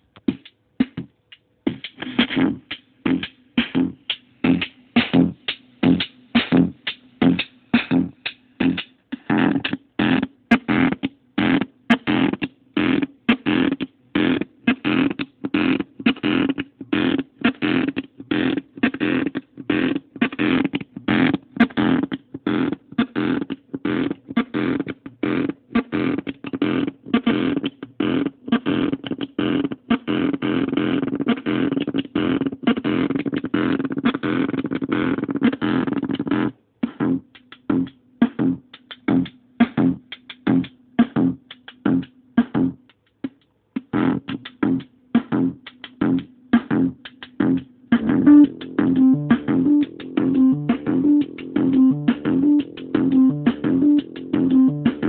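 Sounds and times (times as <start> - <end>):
low synth tone: 48.1 - 55.0.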